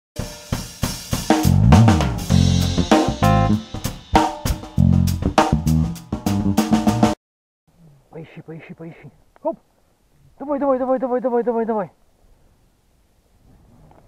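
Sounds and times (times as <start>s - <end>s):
drum kit beat: 0.2s - 7.2s
sustained bass notes: 1.4s - 7.1s.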